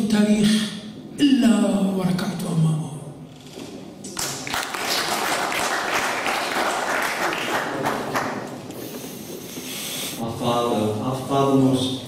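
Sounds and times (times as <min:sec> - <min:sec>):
audience applauding: 0:04.1 - 0:08.7.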